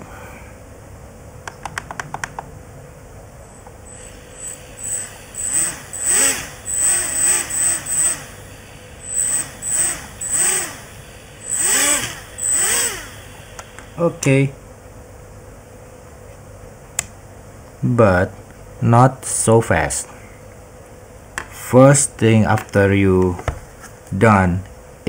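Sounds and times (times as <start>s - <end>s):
quadcopter motors whining: 3.7s - 14.4s.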